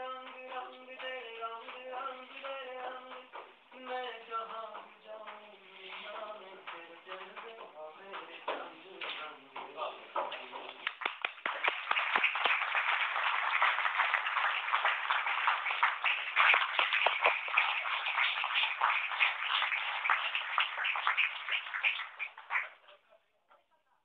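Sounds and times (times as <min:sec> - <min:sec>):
audience applauding: 0:10.7 - 0:22.9.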